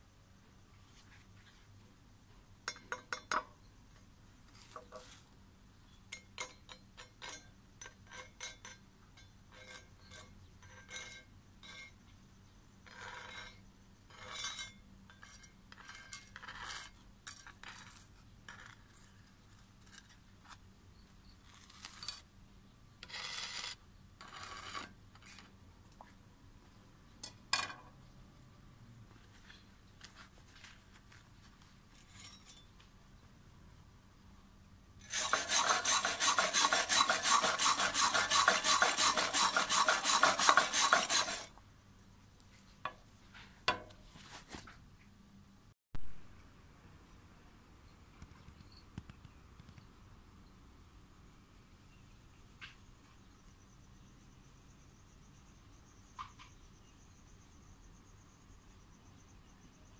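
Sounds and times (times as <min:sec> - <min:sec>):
metal scraping on stone: 0:06.3 - 0:12.0, 0:12.9 - 0:20.2, 0:23.0 - 0:25.5, 0:35.0 - 0:41.5.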